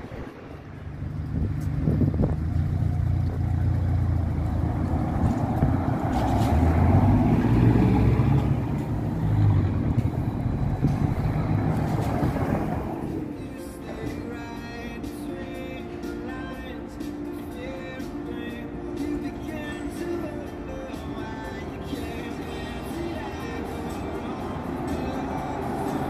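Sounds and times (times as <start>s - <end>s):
road traffic rumbling: 0.0s - 26.0s
trolleybus drawing up: 0.0s - 26.0s.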